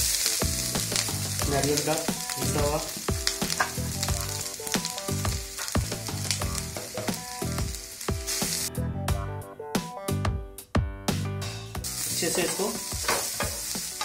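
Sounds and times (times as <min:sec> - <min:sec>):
coconut sizzling in a frying pan: 0:00.0 - 0:08.7, 0:11.8 - 0:14.0
background music with beat: 0:00.0 - 0:14.0.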